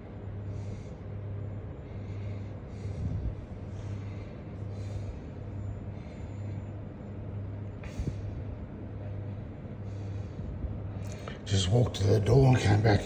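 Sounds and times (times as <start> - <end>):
soft breaths: 0.0 - 11.6
low room hum: 0.0 - 13.0.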